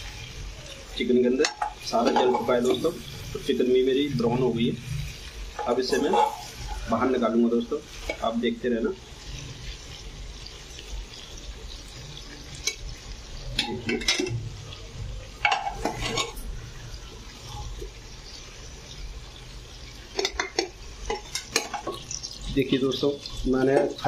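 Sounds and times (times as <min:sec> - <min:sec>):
oil frying hiss: 0:00.0 - 0:24.0
metal ladle scraping and clinking pot: 0:05.5 - 0:06.9, 0:15.4 - 0:16.5.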